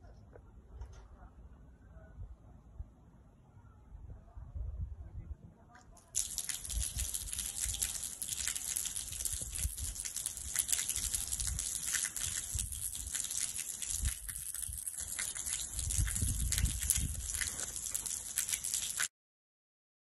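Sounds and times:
hose water splashing on concrete: 6.0 - 19.1.

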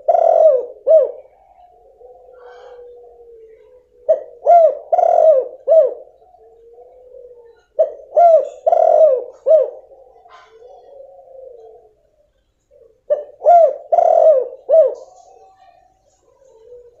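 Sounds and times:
dove cooing: 0.0 - 17.0.

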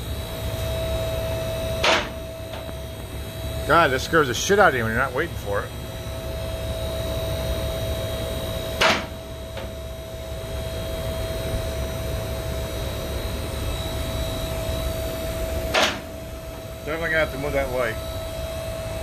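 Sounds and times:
car lift motor humming: 0.0 - 19.0
sharp clack: 8.8 - 9.1, 15.7 - 16.1.

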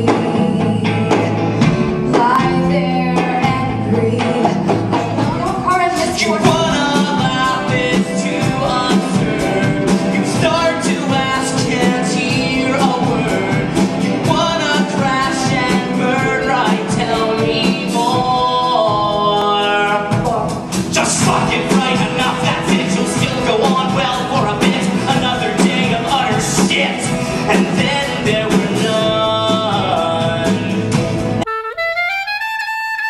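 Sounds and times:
rock band with drums: 0.0 - 33.0
man singing: 5.2 - 31.1.

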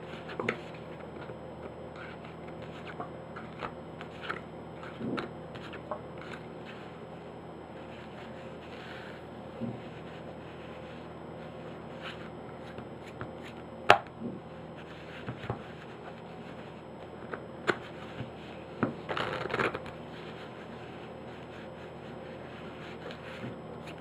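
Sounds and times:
cards rustling: 1.9 - 7.0, 14.8 - 24.0.

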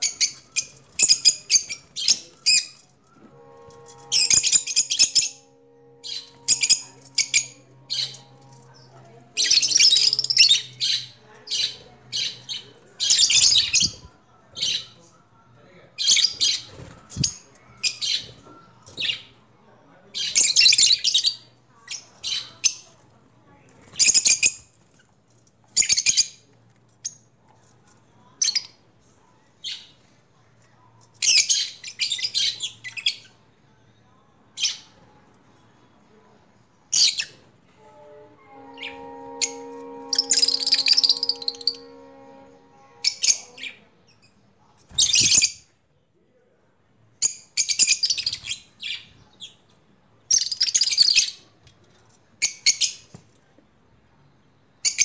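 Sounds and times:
birds chirping and squawking: 0.0 - 15.0, 38.4 - 43.8
steady multi-note tone: 3.1 - 11.4, 37.8 - 43.8.

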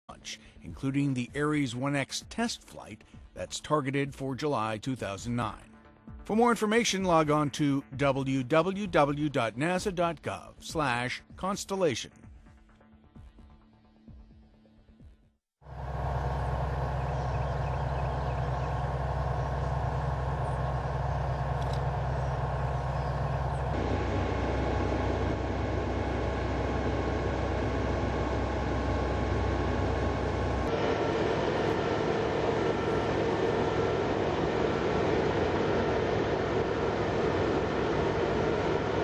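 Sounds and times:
heavy machinery engine humming: 15.7 - 39.0.

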